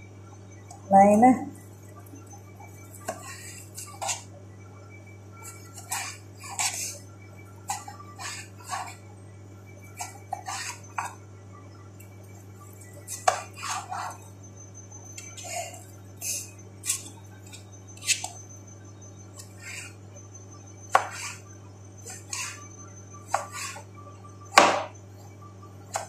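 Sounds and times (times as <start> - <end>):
steady low hum: 0.0 - 26.0
knife chopping on cutting board: 13.2 - 13.8, 20.9 - 21.4, 23.3 - 23.8, 24.6 - 24.9.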